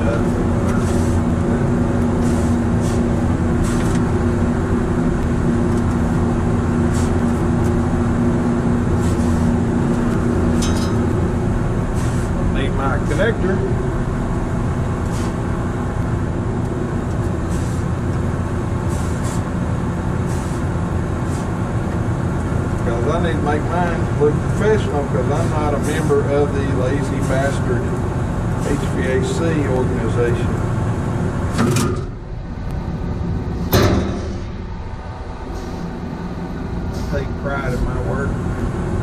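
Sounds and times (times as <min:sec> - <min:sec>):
refrigeration equipment humming: 0:00.0 - 0:39.0
sharp knock: 0:33.7 - 0:34.5.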